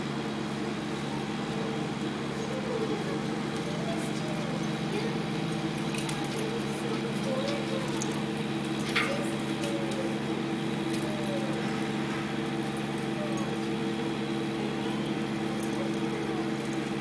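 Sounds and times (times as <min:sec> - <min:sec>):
machine hum: 0:00.0 - 0:17.0
collar chain jingling: 0:02.3 - 0:10.0, 0:10.8 - 0:13.8, 0:14.8 - 0:17.0.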